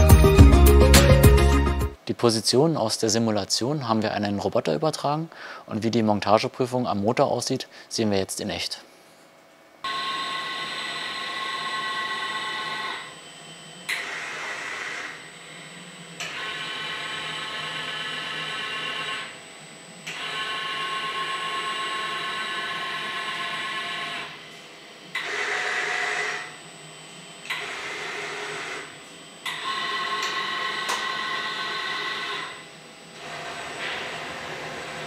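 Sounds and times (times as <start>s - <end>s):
robot arm servo whine: 9.8s - 35.0s.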